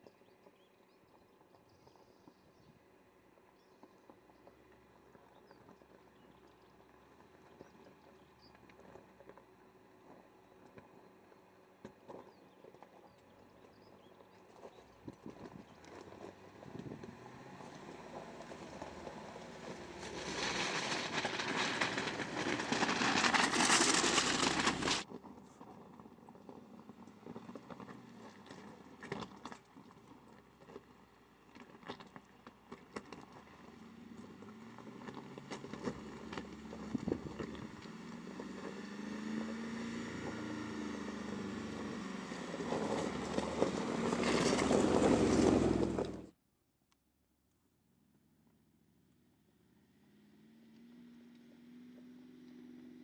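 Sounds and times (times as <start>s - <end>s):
stones shifting under wheel: 3.6s - 46.3s
tyres crunching over loose rocks: 11.8s - 46.3s
car engine running: 12.1s - 25.1s, 32.8s - 46.3s.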